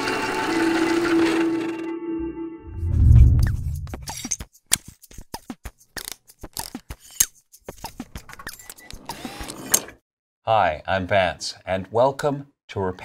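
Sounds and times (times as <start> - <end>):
low boom: 2.6 - 4.1.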